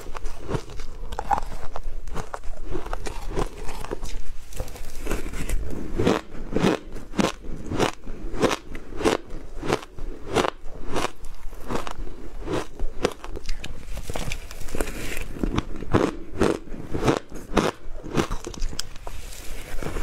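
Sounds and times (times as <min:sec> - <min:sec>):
crunching ice being chewed: 0:00.0 - 0:20.0.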